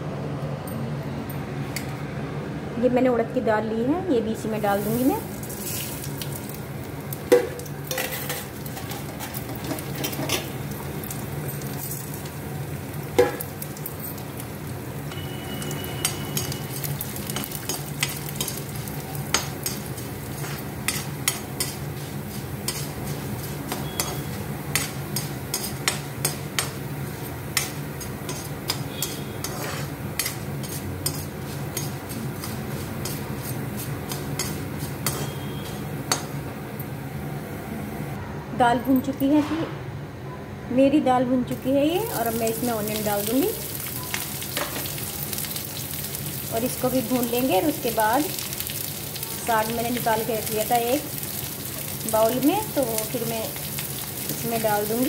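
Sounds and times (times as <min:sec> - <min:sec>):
lentils sizzling in hot oil: 0:04.6 - 0:36.6, 0:41.5 - 0:55.0
spatula scraping a pan: 0:15.2 - 0:26.4, 0:27.6 - 0:35.9.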